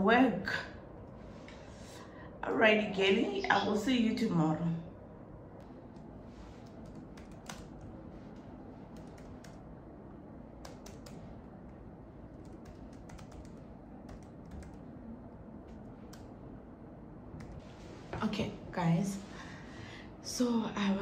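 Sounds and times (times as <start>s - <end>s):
laptop keyboard typing: 5.6s - 9.7s, 10.5s - 16.4s, 17.3s - 17.7s.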